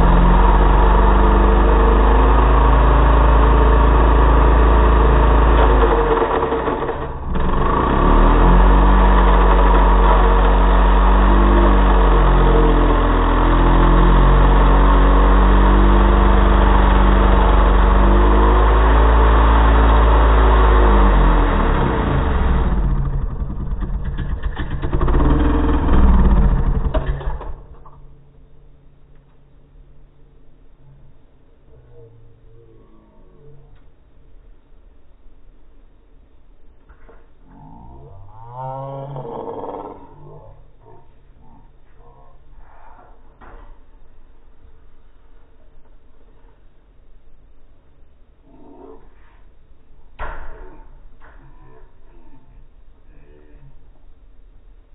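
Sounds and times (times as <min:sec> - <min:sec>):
chainsaw cutting helmet: 0:00.0 - 0:27.6.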